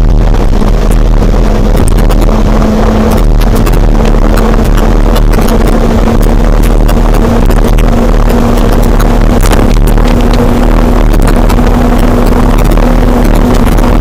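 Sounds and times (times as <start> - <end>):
steady hum: 0.0 - 14.0
wind rushing over microphone: 0.0 - 14.0.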